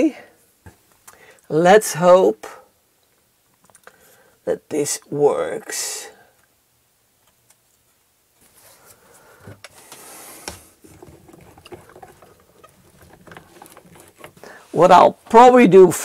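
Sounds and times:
rustling hiss: 7.8s - 15.3s
handling taps and knocks: 9.4s - 14.6s.

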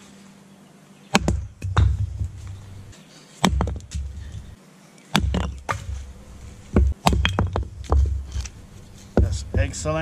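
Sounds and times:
hatchet chopping log: 1.1s - 2.7s, 3.4s - 9.8s.

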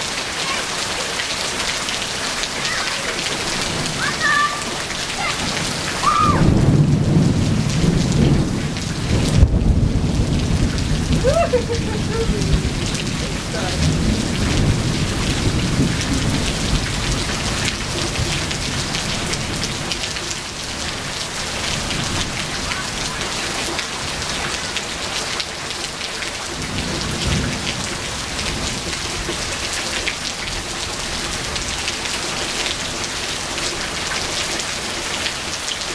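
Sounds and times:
heavy rain on pavement: 0.0s - 35.9s
thunder rumbling: 3.2s - 20.0s
sharp thunder crack: 5.4s - 18.4s.

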